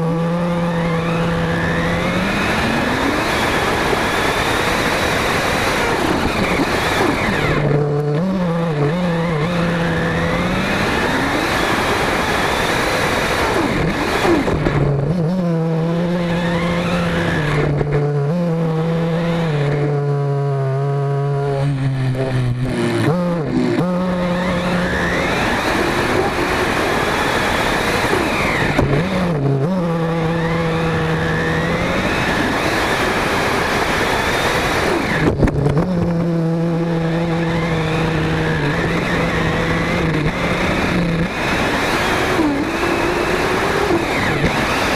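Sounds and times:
model car engine revving: 0.0 - 44.9.

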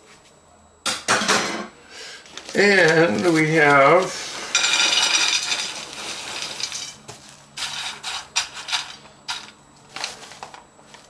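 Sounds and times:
hand spreading crackers: 2.2 - 11.0
crackers pouring onto a plate: 2.4 - 7.0.

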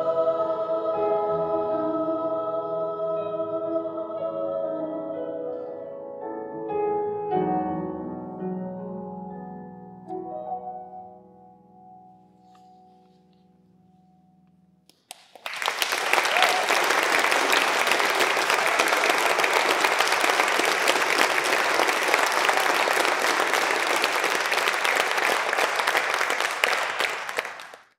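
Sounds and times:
audience applauding: 14.9 - 27.9.

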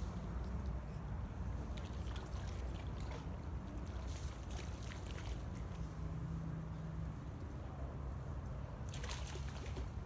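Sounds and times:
fish splashing at water surface: 1.6 - 5.8, 8.9 - 10.0.

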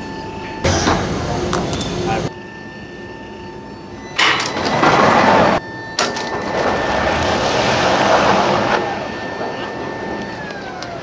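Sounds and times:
faint high whine: 0.0 - 6.5
catapult sled rushing noise: 6.7 - 9.1.

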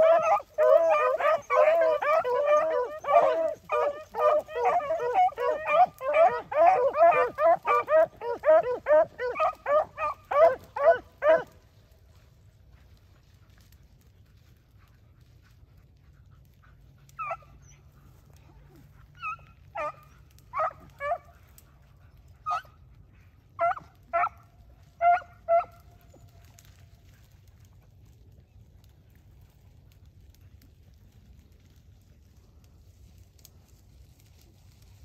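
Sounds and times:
beagles baying: 0.0 - 11.6, 19.2 - 21.3, 25.0 - 26.3.

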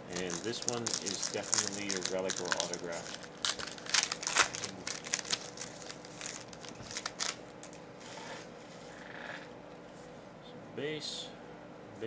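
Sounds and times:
cards flicking and rustling: 0.1 - 7.8.

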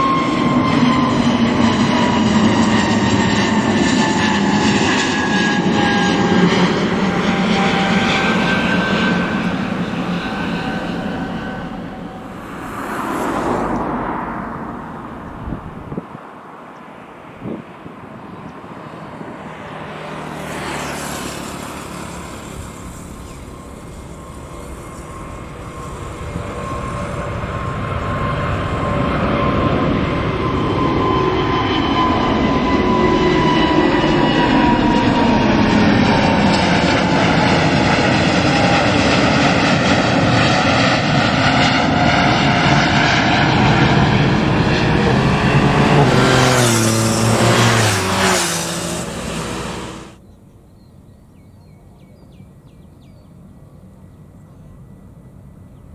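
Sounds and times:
jet engines at takeoff thrust: 0.0 - 55.9.

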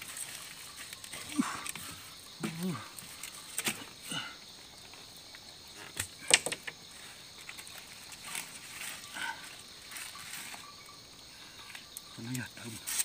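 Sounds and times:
clicks and knocks on bamboo floor: 5.8 - 6.8.

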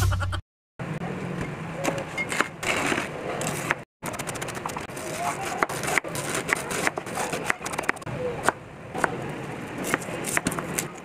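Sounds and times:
knife slicing cabbage on wooden board: 2.3 - 9.2, 9.8 - 11.0.

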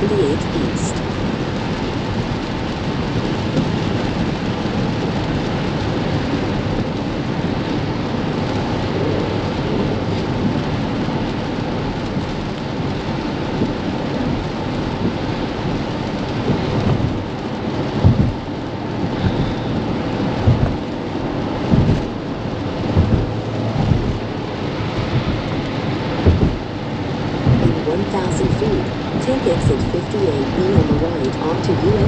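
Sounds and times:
rain and tyres on wet road: 0.0 - 32.0
low thumps: 16.5 - 32.0.

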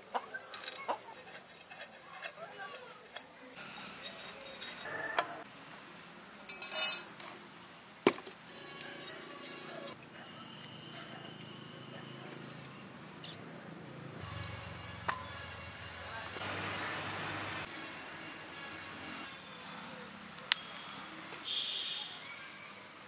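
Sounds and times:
high insect drone: 0.1 - 23.0
fish scraping on metal blade: 0.4 - 5.4, 6.5 - 7.1, 8.6 - 10.0.

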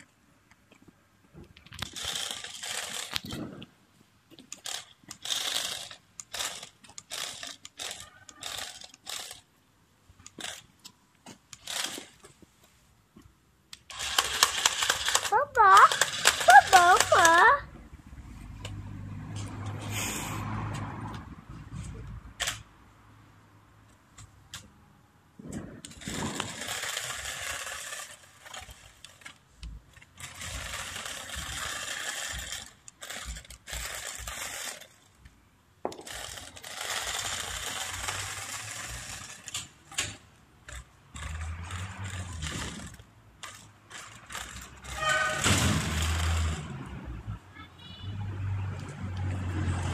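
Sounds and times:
wheels running over asphalt: 0.8 - 3.8, 25.4 - 47.3
toy car electric motors whirring: 1.6 - 3.7, 4.4 - 9.5, 10.2 - 10.7, 11.5 - 12.4, 13.7 - 17.7, 25.5 - 47.2.

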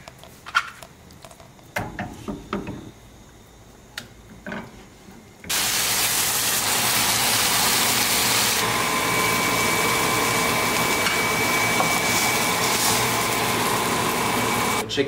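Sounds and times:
chicken sizzling in a pan: 5.5 - 14.8.

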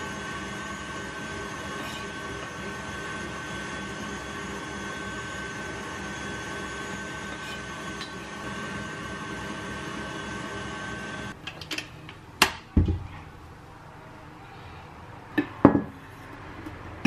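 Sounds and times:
appliance motor whirring: 0.0 - 11.4.

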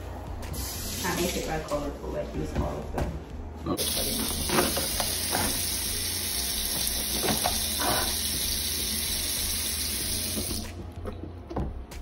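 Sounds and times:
tap water running into sink: 3.8 - 10.7.

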